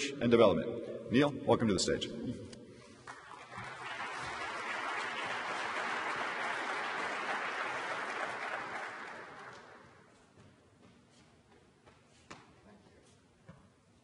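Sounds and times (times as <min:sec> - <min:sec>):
audience applauding: 0:03.0 - 0:10.0.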